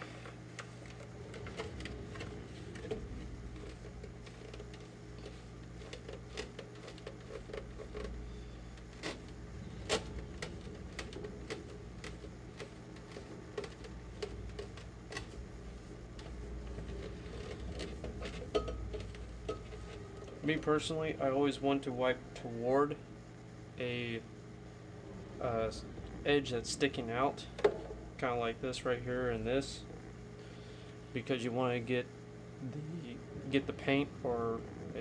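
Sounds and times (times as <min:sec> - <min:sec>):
steady low hum: 0:00.0 - 0:35.0
wet rag rubbing on plastic: 0:00.6 - 0:18.4.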